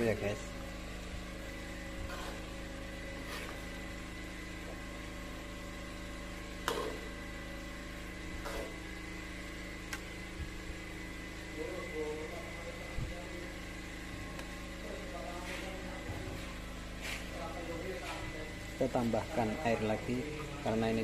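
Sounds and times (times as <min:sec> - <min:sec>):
steady electrical hum: 0:00.0 - 0:21.0
metal spatula scraping a wok: 0:02.0 - 0:02.5, 0:03.2 - 0:03.7.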